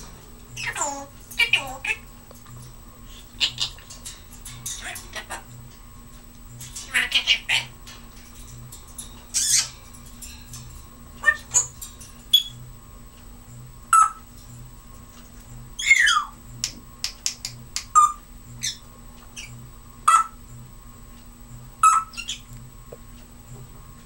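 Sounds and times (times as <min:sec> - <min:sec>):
parrot squawking: 0:00.6 - 0:02.1, 0:03.2 - 0:03.9, 0:04.6 - 0:05.6, 0:06.8 - 0:07.8, 0:09.3 - 0:09.8, 0:11.2 - 0:12.5, 0:13.9 - 0:14.2, 0:15.8 - 0:16.4, 0:17.9 - 0:18.8, 0:20.1 - 0:20.4, 0:21.8 - 0:22.4
run of clicks: 0:16.6 - 0:17.9.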